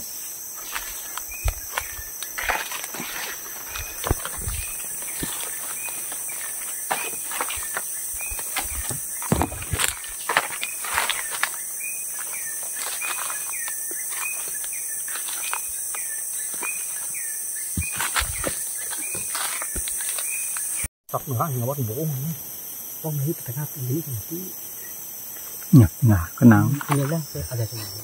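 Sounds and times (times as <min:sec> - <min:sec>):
high-pitched insect drone: 0:00.0 - 0:28.0
footsteps crunching on trail: 0:00.3 - 0:20.9.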